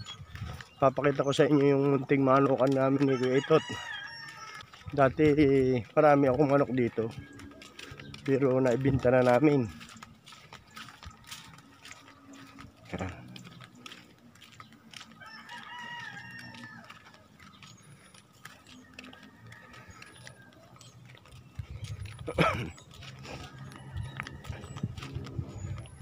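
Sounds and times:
rooster crowing: 2.6 - 4.8, 15.1 - 17.6, 18.6 - 21.0, 23.3 - 25.1.

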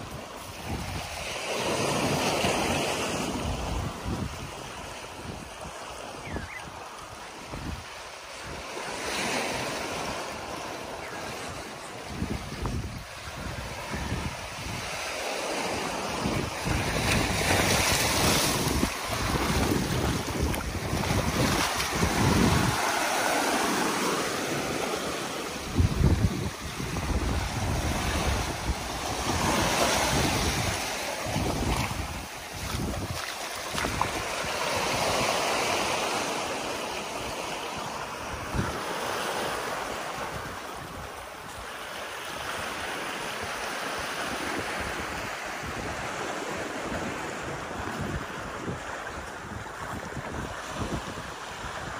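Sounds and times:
wind gusting on microphone: 0.0 - 51.9
small waves breaking on rock: 14.8 - 45.2.

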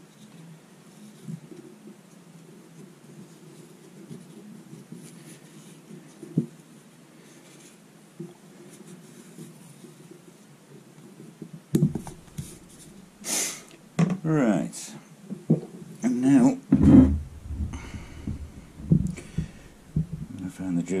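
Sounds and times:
steady low hum: 11.8 - 13.2, 16.6 - 21.0
paper rustling and handling: 12.0 - 13.1
sharp knocks and clicks: 16.7 - 20.4.

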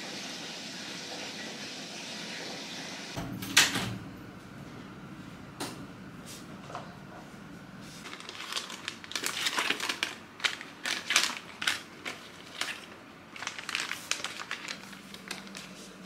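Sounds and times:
plastic packets crinkling: 8.0 - 16.0.

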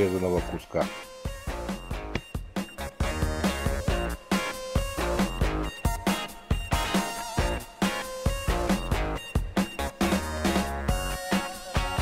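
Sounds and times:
guitar music over a beat: 0.0 - 12.0.

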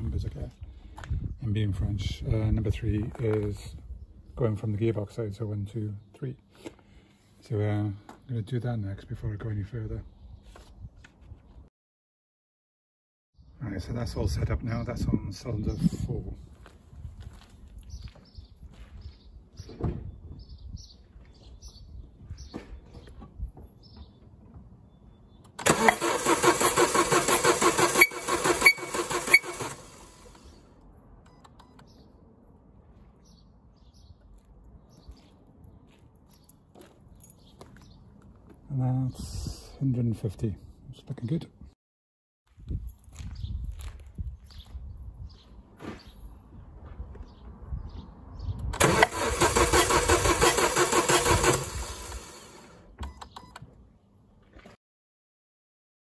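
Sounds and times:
engine cranking on starter motor: 25.5 - 30.6, 48.7 - 52.9.

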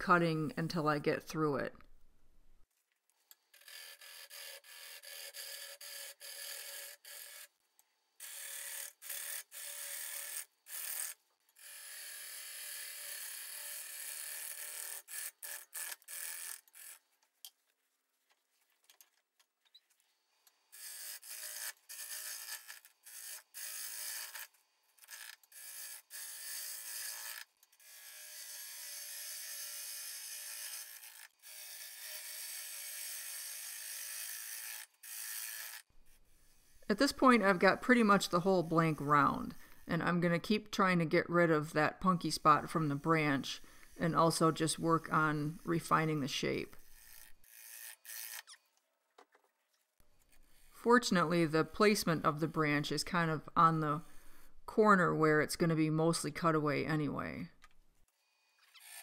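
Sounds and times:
gouge scraping wood on lathe: 3.6 - 7.4, 41.6 - 48.5.

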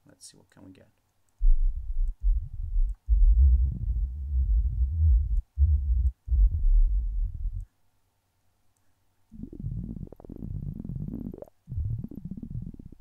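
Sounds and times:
deep bubbling synthesizer notes: 1.4 - 7.6, 9.3 - 13.0.

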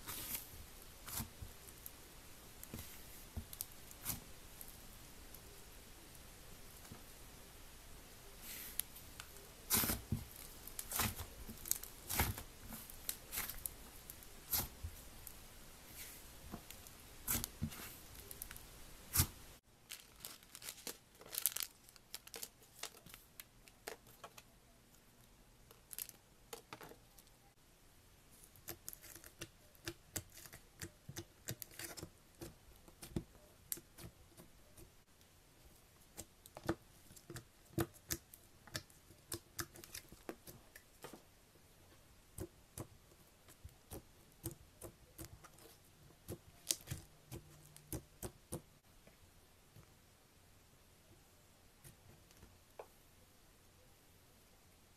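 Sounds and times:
slime crackling and popping: 9.7 - 14.8
foil packet crinkling: 19.8 - 23.2.

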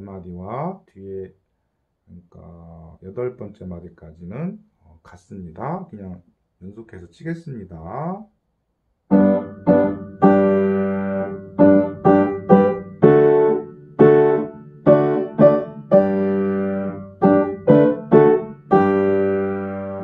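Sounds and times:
hymn played on upright piano: 9.1 - 20.0.

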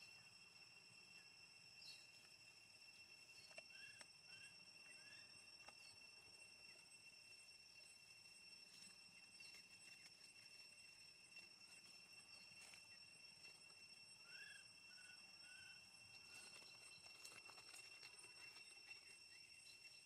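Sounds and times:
high-pitched insect drone: 0.0 - 20.0.

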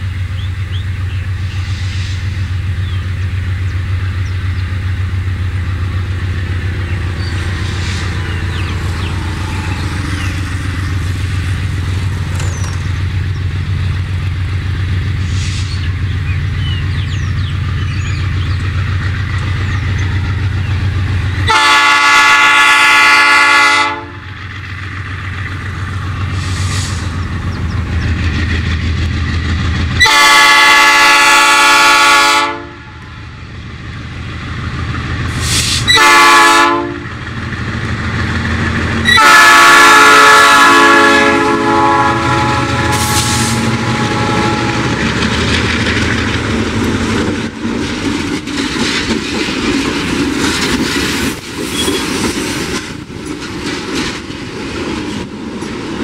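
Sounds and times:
diesel locomotive engine drone: 0.0 - 56.0
train air horn blasts: 21.4 - 24.3, 30.0 - 33.0, 35.5 - 37.1, 39.0 - 45.1.

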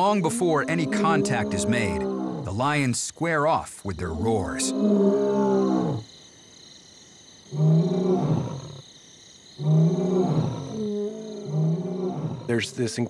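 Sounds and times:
lion roaring: 0.0 - 2.5, 4.0 - 6.1, 7.6 - 8.8, 9.6 - 13.0.

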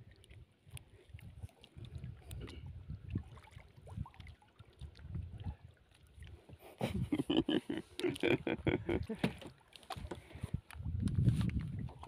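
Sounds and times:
water slapping against boat hull: 8.9 - 12.0.

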